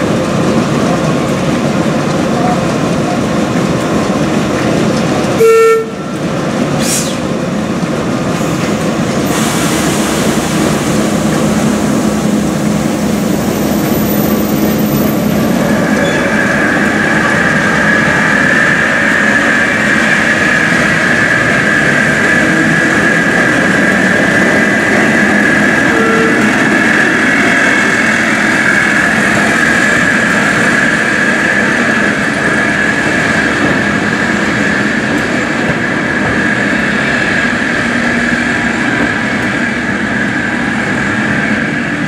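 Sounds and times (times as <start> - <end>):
diesel locomotive drone: 0.0 - 42.0
locomotive horn: 5.4 - 6.2, 25.7 - 26.8
high whine: 9.9 - 31.8.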